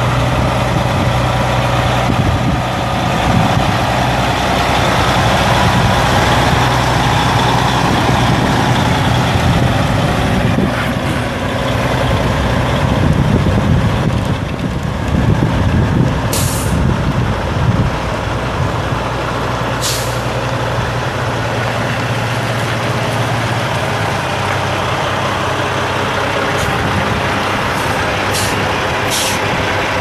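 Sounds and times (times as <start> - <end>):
truck diesel engine running: 0.0 - 30.0
air brake hisses: 16.3 - 16.8, 19.8 - 20.3, 28.3 - 29.5.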